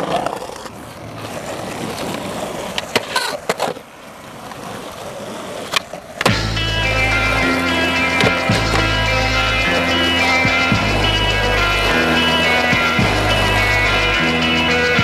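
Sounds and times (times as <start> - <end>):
skateboard clacks: 0.0 - 6.4, 7.1 - 15.0
skateboard wheels rolling on pavement: 0.0 - 15.0
music: 6.3 - 15.0.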